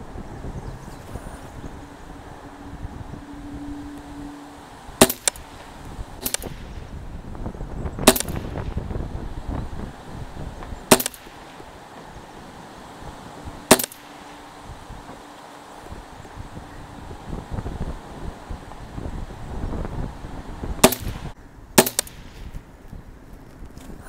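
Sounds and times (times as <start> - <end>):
wind rumbling on microphone: 0.0 - 24.0
rifle shots: 5.0 - 5.5, 6.2 - 6.8, 8.0 - 8.7, 10.9 - 11.6, 13.7 - 14.3, 20.8 - 21.2, 21.8 - 22.4.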